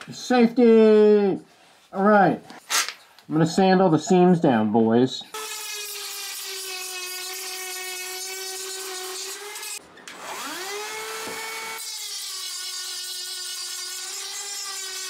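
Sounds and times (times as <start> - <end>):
rotary tool whine: 5.4 - 15.0.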